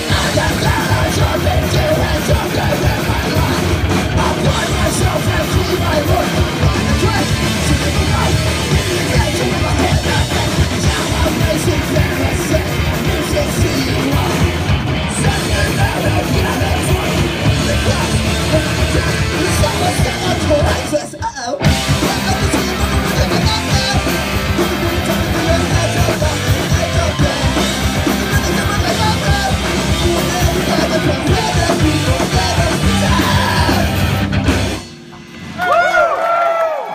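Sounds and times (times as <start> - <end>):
shouted vocals: 0.0 - 34.0, 35.6 - 36.9
punk band playing live: 0.0 - 36.3
drums: 0.0 - 36.9.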